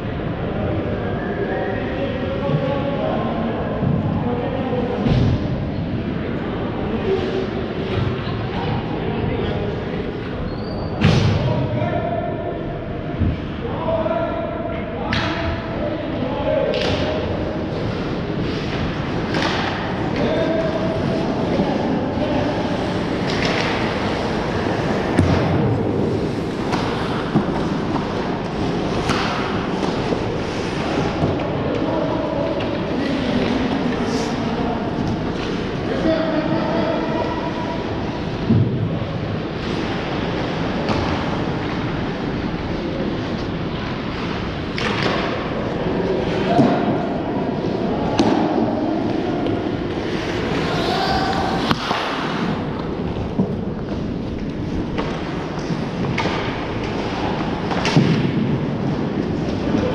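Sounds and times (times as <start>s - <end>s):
skating and rink rumble: 0.0s - 59.9s
sharp knocks of hockey play: 16.6s - 34.0s, 39.6s - 42.0s, 43.4s - 59.9s
stick hitting puck: 18.6s - 20.4s, 23.1s - 31.4s, 48.2s - 48.5s, 49.1s - 54.0s, 54.9s - 58.4s.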